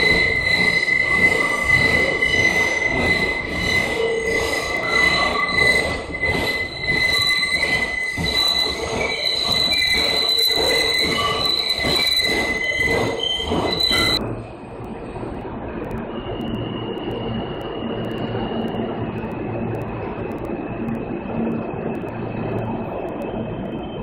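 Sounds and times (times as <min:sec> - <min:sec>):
train wheels squealing on rails: 0:00.0 - 0:14.3
muffled station noise: 0:00.0 - 0:24.0
train rumble: 0:00.0 - 0:24.0.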